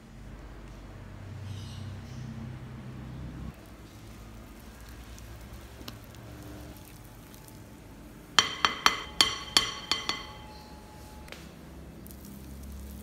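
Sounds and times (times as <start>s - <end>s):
stirring batter: 3.6s - 11.3s
whisk clinking on glass bowl: 8.4s - 11.3s.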